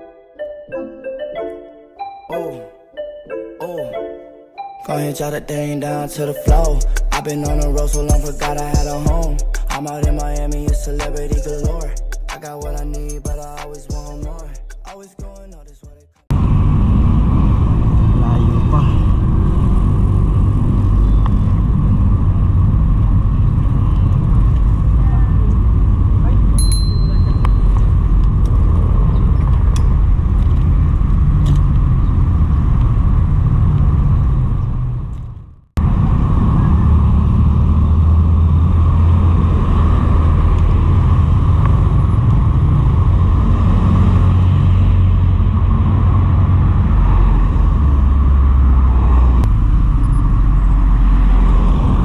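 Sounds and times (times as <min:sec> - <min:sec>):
road and traffic noise: 0:06.1 - 0:52.0
wind rumbling over microphone: 0:16.3 - 0:26.6, 0:27.2 - 0:52.0.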